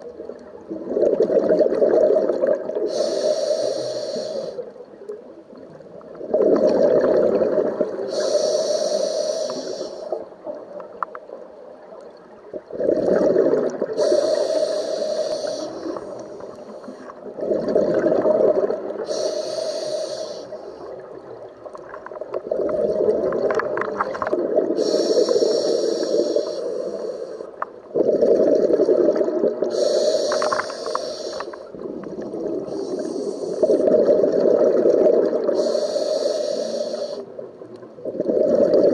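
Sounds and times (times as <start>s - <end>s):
exhaust bubbles underwater: 0.0s - 3.0s, 5.6s - 8.2s, 12.4s - 14.8s, 15.4s - 19.2s, 20.8s - 26.4s, 27.8s - 30.7s, 31.6s - 35.8s, 37.3s - 38.9s
regulator inhalation hiss: 2.8s - 4.7s, 8.0s - 10.2s, 14.0s - 17.2s, 19.0s - 20.9s, 24.8s - 27.6s, 29.7s - 31.8s, 32.6s - 33.8s, 35.4s - 37.3s.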